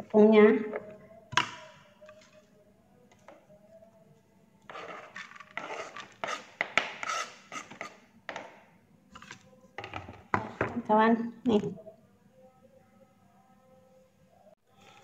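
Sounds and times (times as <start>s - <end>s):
knife scraping cutting board: 4.7s - 8.0s.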